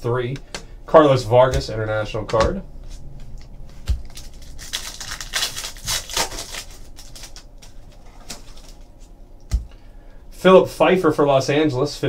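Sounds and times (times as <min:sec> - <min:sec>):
wrapper tearing and crinkling: 0:03.9 - 0:09.0.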